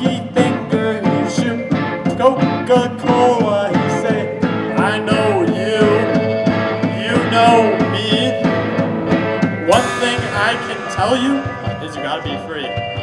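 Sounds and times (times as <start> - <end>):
man singing into a microphone: 0.0 - 8.6, 9.7 - 12.6
rock band playing live: 0.0 - 13.0.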